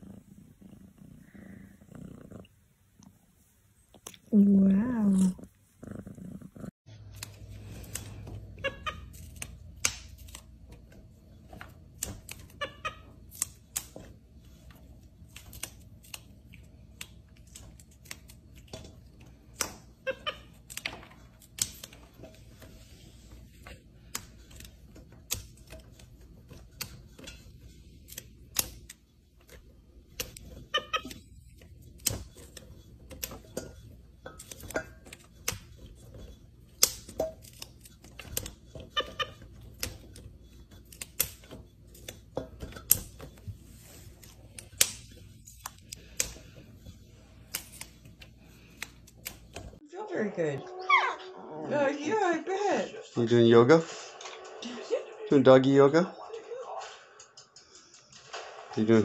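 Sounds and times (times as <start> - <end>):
green beans snapping: 7.1 - 10.5, 11.8 - 14.0, 15.2 - 22.1, 36.7 - 38.6, 39.6 - 42.2, 44.2 - 46.5, 47.4 - 49.7.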